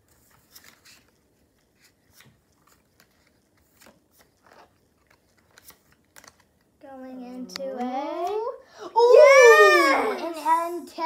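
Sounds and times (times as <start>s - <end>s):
trading cards rustling and clicking: 0.1s - 6.8s.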